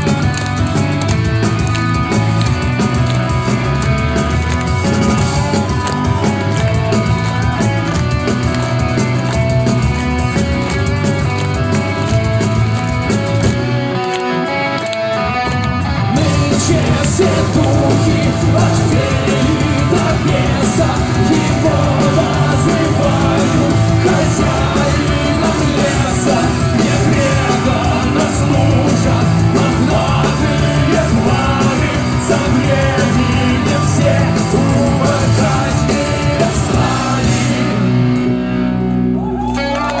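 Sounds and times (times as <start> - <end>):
steady drum beat: 0.0 - 13.7, 16.1 - 38.0
live rock band: 0.0 - 40.0
sung and shouted vocals: 16.1 - 38.2.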